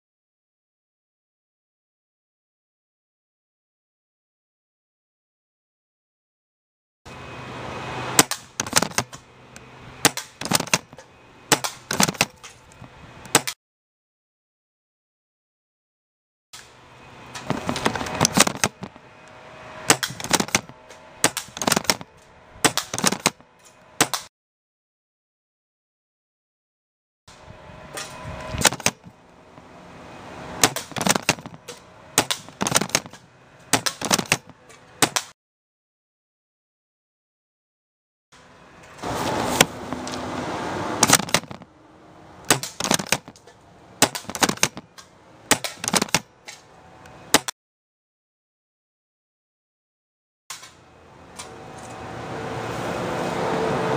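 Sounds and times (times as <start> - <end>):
pellets striking targets: 8.2 - 9.2, 10.0 - 12.5, 17.4 - 19.0, 19.8 - 23.4, 24.0 - 24.3, 28.0 - 29.1, 30.6 - 35.3, 41.0 - 41.7, 42.4 - 46.3
airsoft rifle rapid shots: 10.0 - 10.9, 19.9 - 23.4, 30.6 - 31.5, 32.2 - 35.3, 42.5 - 43.3, 44.0 - 44.8.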